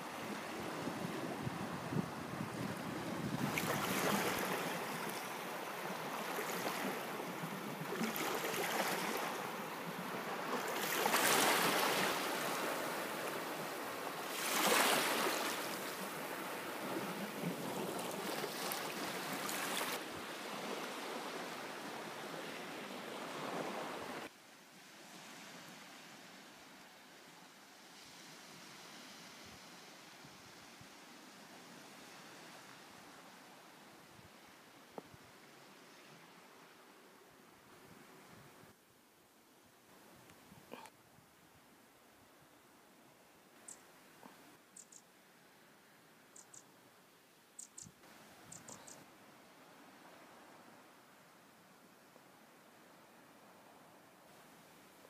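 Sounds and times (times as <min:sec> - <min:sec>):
small waves washing onto shore: 0:00.0 - 0:26.8
wind on microphone: 0:00.4 - 0:04.7.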